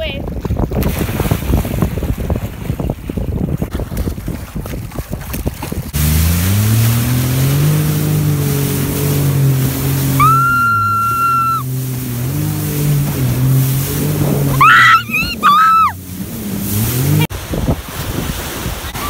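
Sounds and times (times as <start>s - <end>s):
wind noise: 0.0s - 6.0s, 11.4s - 19.0s
water splashing: 0.3s - 19.0s
watercraft engine running: 2.0s - 19.0s.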